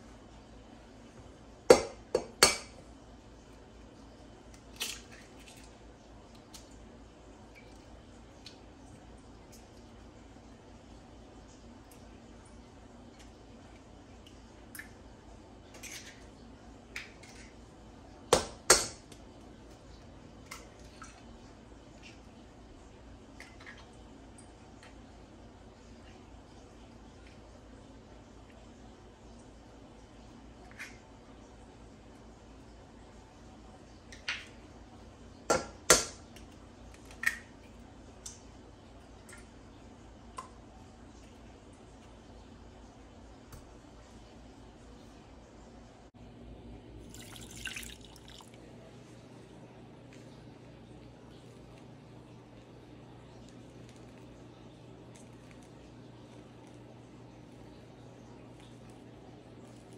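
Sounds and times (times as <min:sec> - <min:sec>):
egg tapped against metal bowl: 0:01.7 - 0:02.8.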